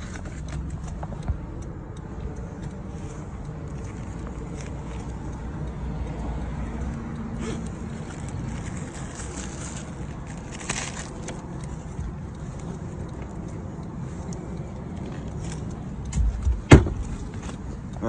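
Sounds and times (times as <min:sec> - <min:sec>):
rustling and clicking handling noises: 0:00.0 - 0:01.4, 0:07.6 - 0:17.8
car idling: 0:00.0 - 0:18.0
heavy bumps: 0:16.1 - 0:17.3.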